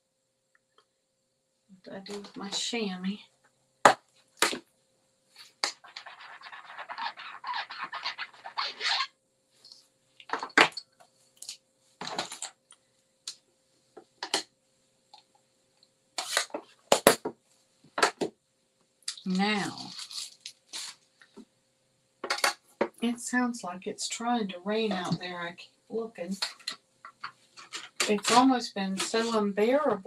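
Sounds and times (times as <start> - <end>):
scratchy rubbing of rubber stamp: 5.5 - 9.1.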